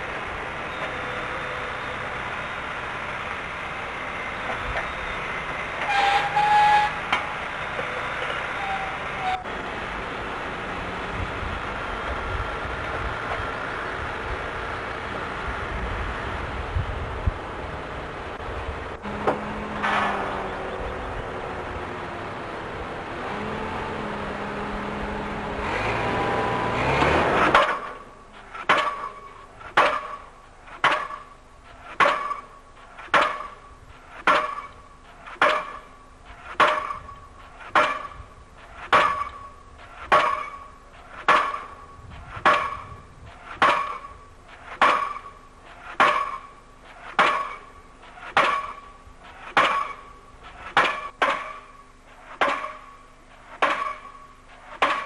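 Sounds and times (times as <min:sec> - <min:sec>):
machinery running: 0:00.0 - 0:55.0
pile hammer clanging: 0:19.2 - 0:20.4, 0:27.0 - 0:55.0.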